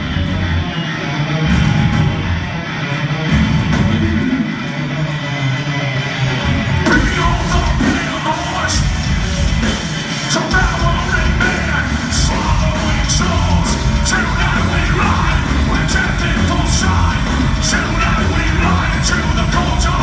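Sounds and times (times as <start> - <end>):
live heavy rock band playing: 0.0 - 20.0
singer's shouted vocals: 6.6 - 9.2, 10.2 - 20.0.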